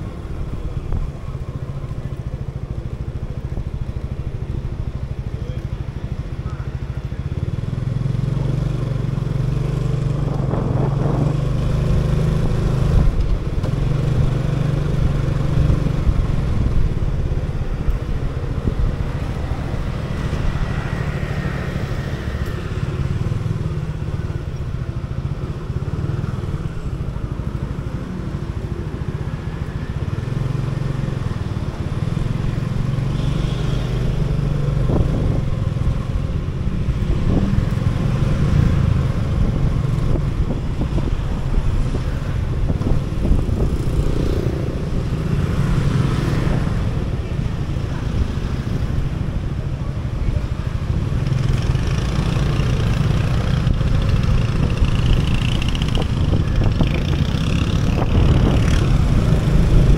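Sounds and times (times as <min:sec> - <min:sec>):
tyre and street noise: 0:00.0 - 0:59.9
motor scooter engine running: 0:51.0 - 0:59.9.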